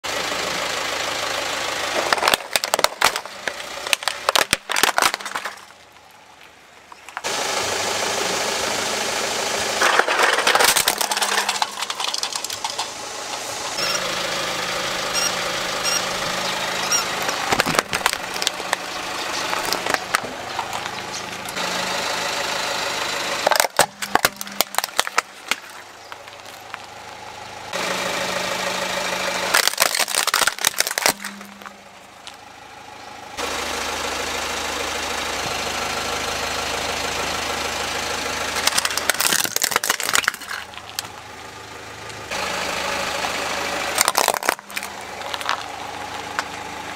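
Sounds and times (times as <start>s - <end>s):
car engine idling: 0.0s - 46.9s
toys cracking under a tyre: 1.9s - 7.3s, 9.8s - 13.0s, 17.3s - 21.5s, 23.4s - 26.9s, 29.5s - 32.4s, 38.6s - 41.2s, 43.9s - 46.6s.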